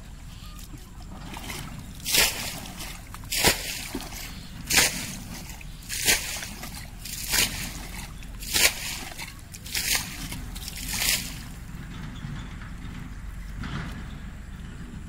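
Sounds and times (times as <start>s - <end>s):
bucket splashing muddy water: 0.0s - 11.8s.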